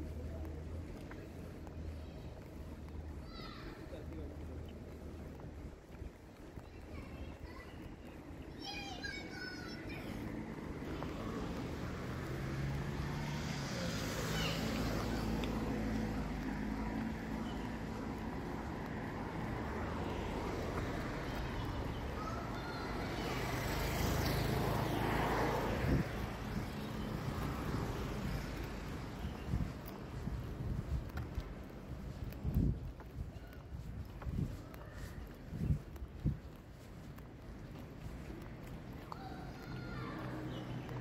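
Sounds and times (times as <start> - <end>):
cars driving past: 9.0 - 32.9.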